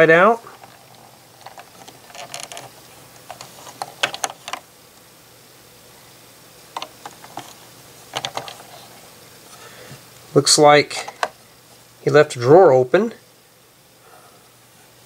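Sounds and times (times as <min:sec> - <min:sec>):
plastic pieces clicking: 0:01.4 - 0:02.7, 0:08.1 - 0:08.6.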